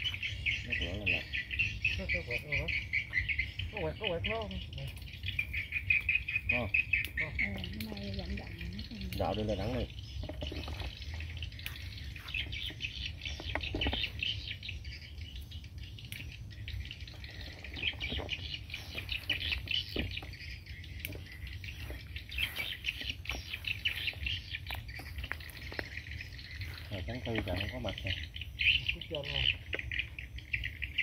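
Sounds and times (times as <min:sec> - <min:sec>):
small birds chirping: 0:00.0 - 0:31.0
twigs snapping and leaves rustling: 0:09.0 - 0:14.4, 0:17.8 - 0:27.9.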